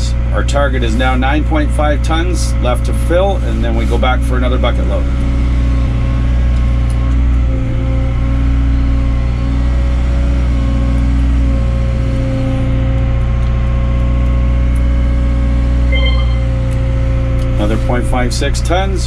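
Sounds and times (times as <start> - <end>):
excavator diesel engine hum: 0.0 - 19.0
faint high steady tone: 15.9 - 16.7.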